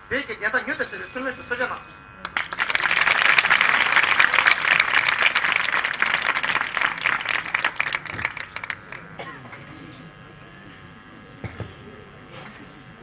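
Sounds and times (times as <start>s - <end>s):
audience applauding: 2.2s - 9.1s.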